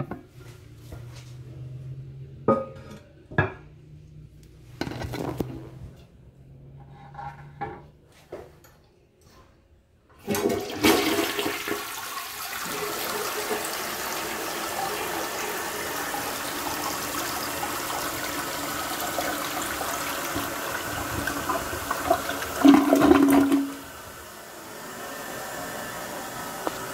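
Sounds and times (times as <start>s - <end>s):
toilet bowl gurgling: 10.2s - 26.9s
toilet flushing: 10.2s - 26.9s.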